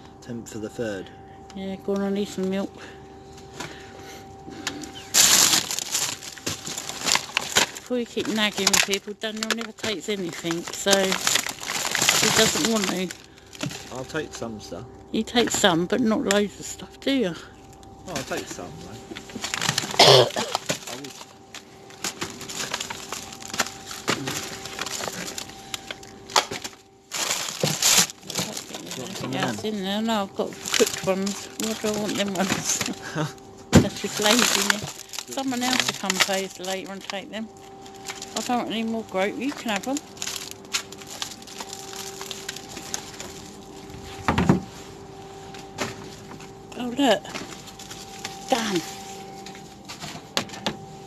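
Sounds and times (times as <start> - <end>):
steady low hum: 0.0 - 51.0
plastic wrappers crinkling: 4.5 - 14.5, 17.6 - 50.9
items clicking and knocking: 4.6 - 14.0, 19.1 - 29.8, 30.4 - 33.0, 33.7 - 37.3, 37.9 - 44.7, 49.4 - 50.8
food packaging rustling: 4.7 - 14.1, 18.2 - 29.8, 30.4 - 33.1, 33.8 - 46.6, 47.3 - 50.6.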